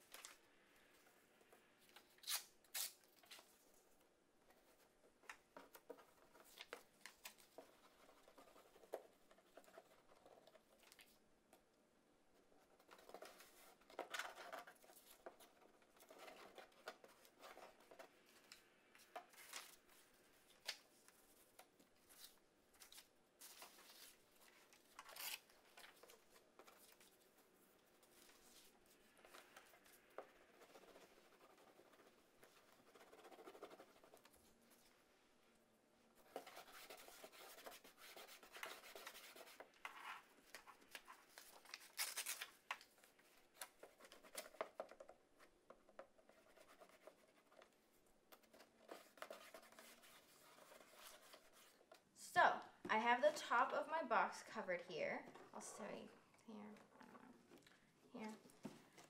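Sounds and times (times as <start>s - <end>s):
paper rustling and tearing: 22.0s - 27.2s, 36.3s - 44.6s.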